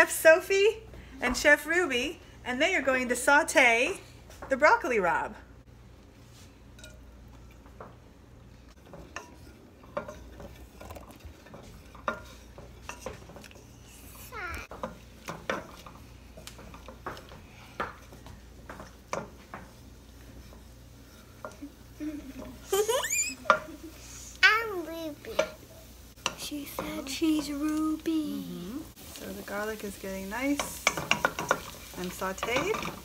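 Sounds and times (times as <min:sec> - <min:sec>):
wooden spoon scraping metal pot: 0:08.8 - 0:21.6.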